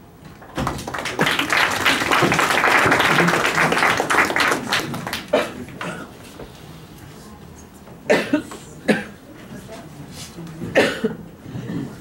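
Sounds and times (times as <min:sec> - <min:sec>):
audience applauding: 0:00.4 - 0:05.8.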